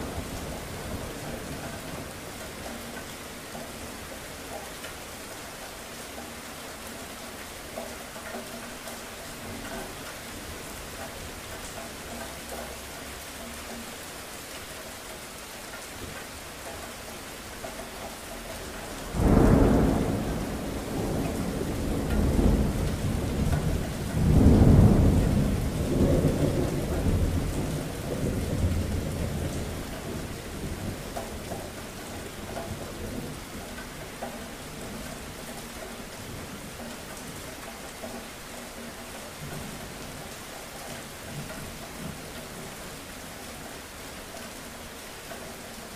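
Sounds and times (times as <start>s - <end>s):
steady rain: 0.0s - 45.9s
thunderclap and rolling rumbles: 19.0s - 36.9s.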